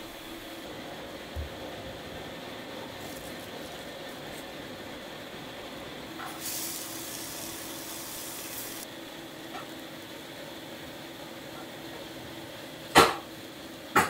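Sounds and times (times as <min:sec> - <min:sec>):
kitchen hum: 0:00.0 - 0:14.0
salt pouring hiss: 0:06.2 - 0:08.9.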